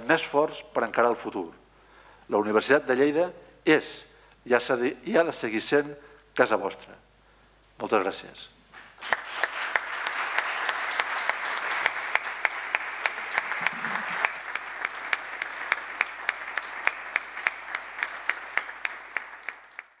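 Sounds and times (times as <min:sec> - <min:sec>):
steady hand clapping near microphone: 0:08.7 - 0:20.0
audience applauding: 0:08.8 - 0:20.0.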